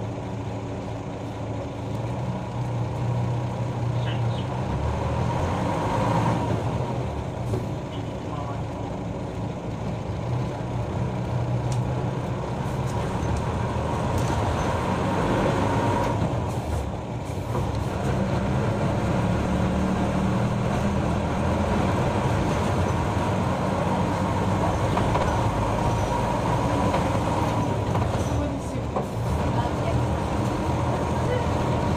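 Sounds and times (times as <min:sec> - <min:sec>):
bus engine hum: 0:00.0 - 0:31.9
road noise: 0:00.0 - 0:31.9.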